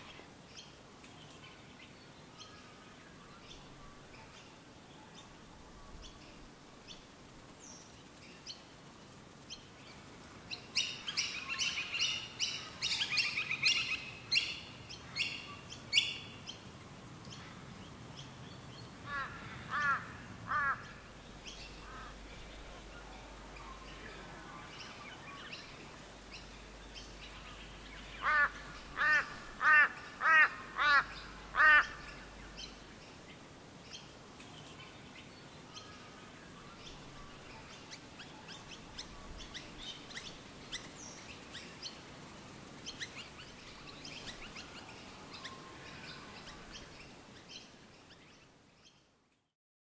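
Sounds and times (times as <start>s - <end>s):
bird giving harsh calls: 19.1s - 21.1s, 28.2s - 32.3s.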